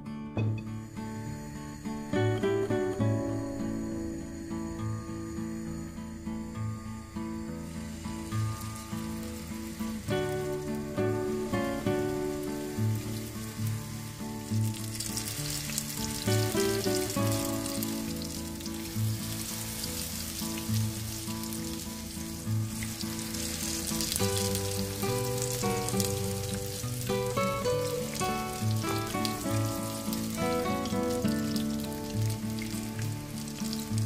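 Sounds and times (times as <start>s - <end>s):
batter sizzling in hot oil: 7.0s - 34.0s.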